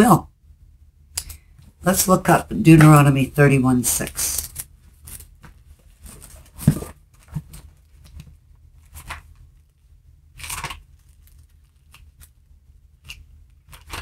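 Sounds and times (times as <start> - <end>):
thin paper pages rustling: 4.2 - 9.7, 10.4 - 12.5, 13.1 - 14.0.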